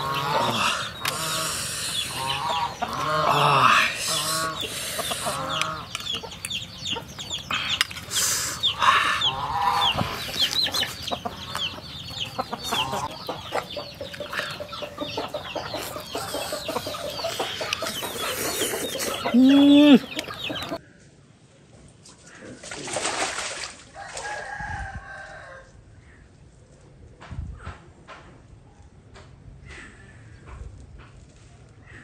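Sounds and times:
chickens clucking: 0.0 - 20.8
high cheeping calls: 0.0 - 20.8.

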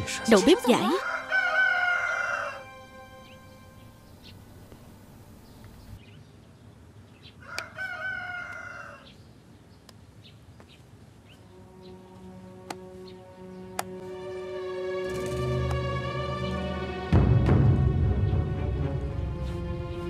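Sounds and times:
rooster crowing: 1.0 - 3.0, 7.4 - 9.1.

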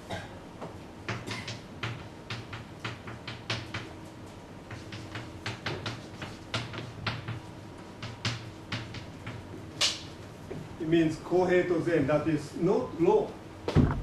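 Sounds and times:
chalk tapping and scraping on blackboard: 1.1 - 10.6.

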